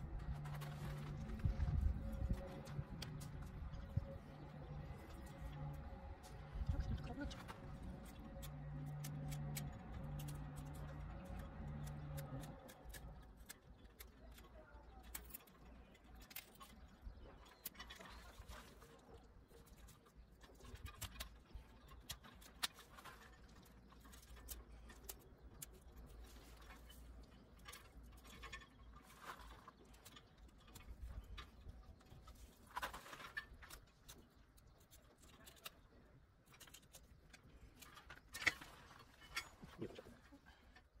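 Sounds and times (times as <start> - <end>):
low steady rumble: 0.0 - 13.5.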